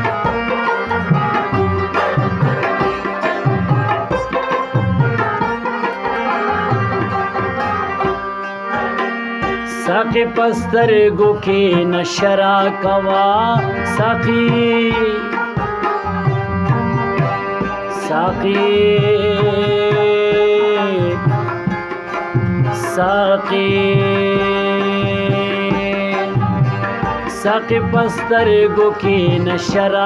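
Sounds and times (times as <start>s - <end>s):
plucked lute: 0.0s - 12.3s, 13.4s - 30.0s
harmonium sustained notes: 0.0s - 30.0s
tabla rhythm: 0.0s - 30.0s
person singing glides: 16.4s - 21.3s.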